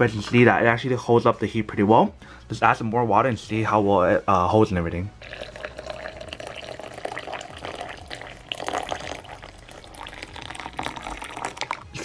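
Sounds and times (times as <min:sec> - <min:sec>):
water pouring into glass bottle: 0:05.2 - 0:12.0.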